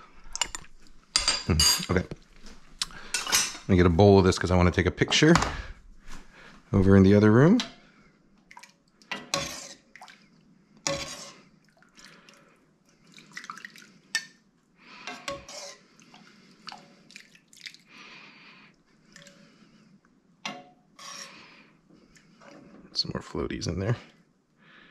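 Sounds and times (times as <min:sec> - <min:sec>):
liquid pouring and dripping: 0:11.6 - 0:14.3, 0:16.0 - 0:17.9.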